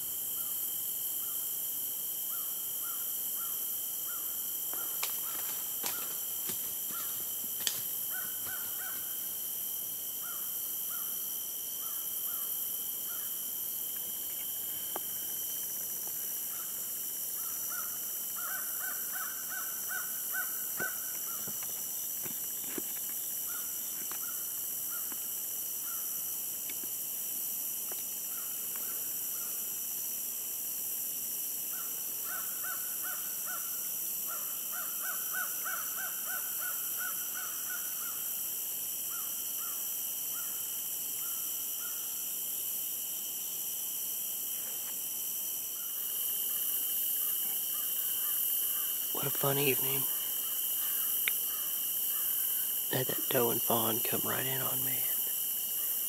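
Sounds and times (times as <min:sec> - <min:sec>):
high-pitched insect drone: 0:00.0 - 0:56.0
crows cawing: 0:02.3 - 0:06.2, 0:06.9 - 0:07.3, 0:08.1 - 0:09.2, 0:10.2 - 0:11.1, 0:17.4 - 0:21.5, 0:34.3 - 0:38.2, 0:47.2 - 0:49.0, 0:50.1 - 0:52.6.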